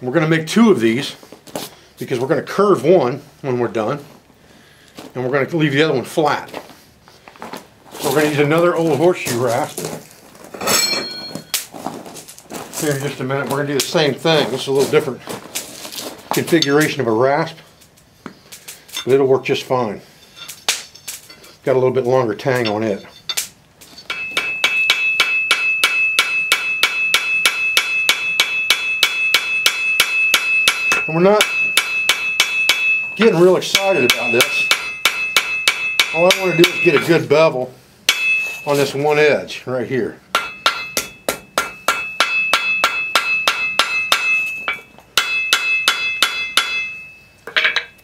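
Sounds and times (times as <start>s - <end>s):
anvil ringing: 10.6s - 11.6s, 22.6s - 37.3s, 38.1s - 39.0s, 40.3s - 48.0s
hammer striking metal on anvil: 24.1s - 37.3s, 38.1s - 39.0s, 40.3s - 48.0s.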